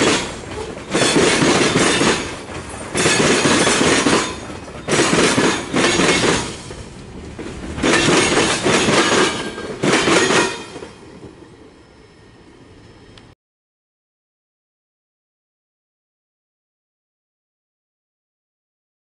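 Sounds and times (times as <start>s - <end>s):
train wheels clattering on rails: 0.0s - 11.8s.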